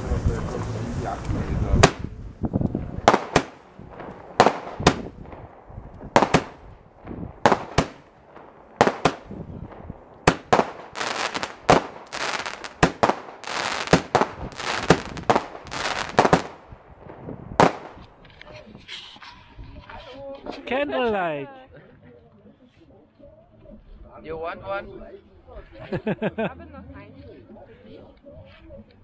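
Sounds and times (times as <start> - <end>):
fireworks banging and crackling: 0.0 - 20.6.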